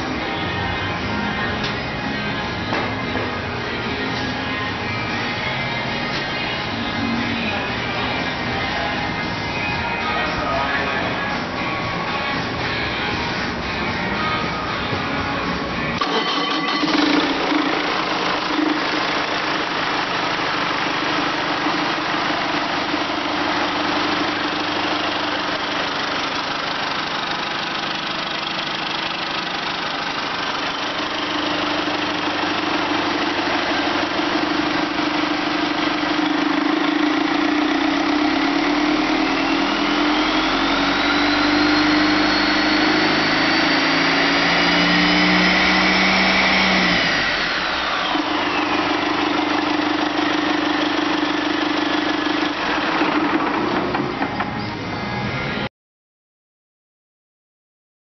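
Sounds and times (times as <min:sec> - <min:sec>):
diesel engine running: 0:00.0 - 0:55.7
turbocharger whistle: 0:37.8 - 0:50.2.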